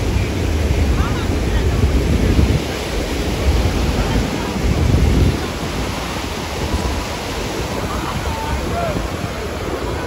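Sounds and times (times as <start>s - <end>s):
ocean surf breaking: 0.0s - 10.0s
wind rumbling on microphone: 0.0s - 10.0s
people's voices: 7.3s - 10.0s.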